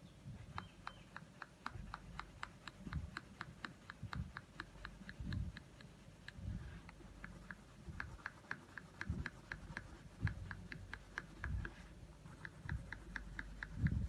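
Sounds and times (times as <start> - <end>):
soft low thumps: 0.2 - 14.0
pencil scratching on paper: 0.4 - 14.0.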